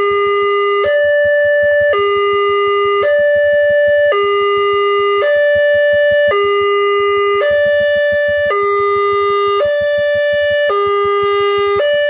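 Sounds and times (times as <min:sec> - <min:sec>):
level crossing two-tone alarm: 0:00.0 - 0:12.0.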